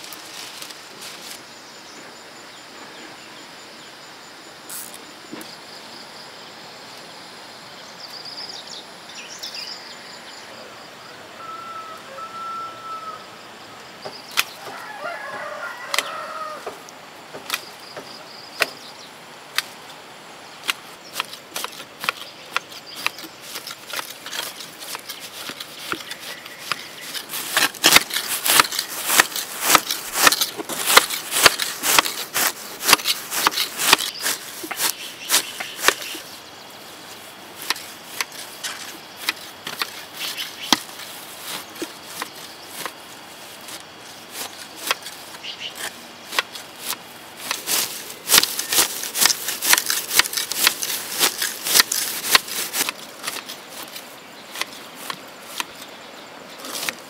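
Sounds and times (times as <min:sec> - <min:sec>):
chicken calling: 0:11.4 - 0:13.4, 0:14.6 - 0:16.8
hedge shears snipping: 0:20.6 - 0:36.3, 0:37.6 - 0:55.9, 0:56.6 - 0:57.0.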